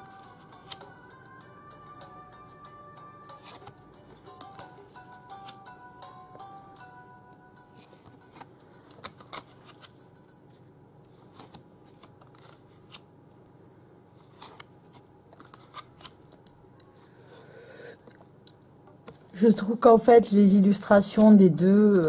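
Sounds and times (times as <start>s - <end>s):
faint steady hum: 0.0s - 22.0s
cards scraping: 3.3s - 4.7s, 7.8s - 10.0s, 11.2s - 13.0s, 14.2s - 16.3s.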